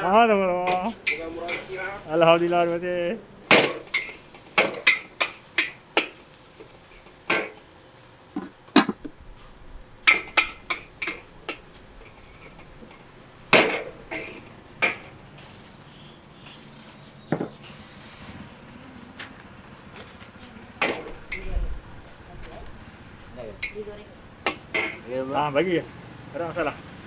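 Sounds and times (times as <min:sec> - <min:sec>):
kitchenware clanking: 0:03.5 - 0:06.2, 0:07.2 - 0:07.6, 0:10.0 - 0:15.2, 0:23.6 - 0:25.1.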